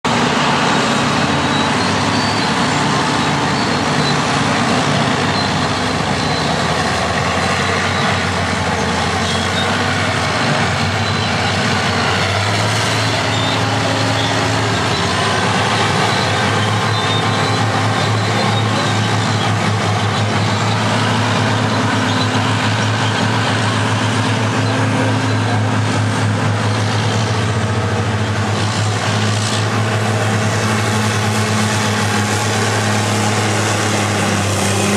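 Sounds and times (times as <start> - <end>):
heavy diesel engines running: 0.0 - 34.9.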